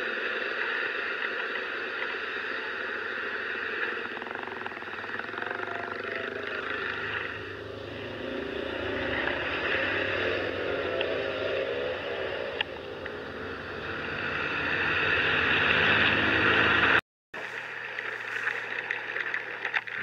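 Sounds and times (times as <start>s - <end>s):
road and traffic noise: 0.0s - 20.0s
scooter engine running: 3.9s - 17.0s.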